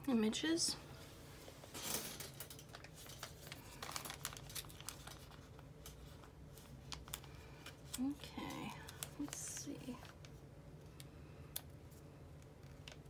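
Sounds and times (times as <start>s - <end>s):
plastic packet crinkling: 2.4s - 10.4s.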